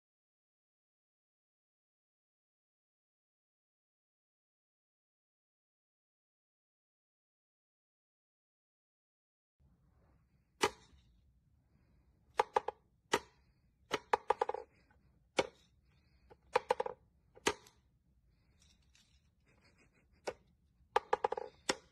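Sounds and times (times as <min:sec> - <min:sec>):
wooden toy knocking: 0:12.4 - 0:14.8, 0:16.3 - 0:17.8, 0:20.2 - 0:21.9.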